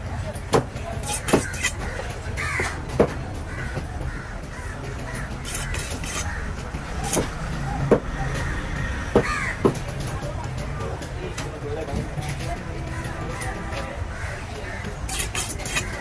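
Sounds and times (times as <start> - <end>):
low traffic rumble: 0.0 - 16.0
knife chopping on wooden board: 0.5 - 2.0, 7.0 - 8.1
crows cawing: 1.4 - 6.7, 8.2 - 9.8, 12.8 - 16.0.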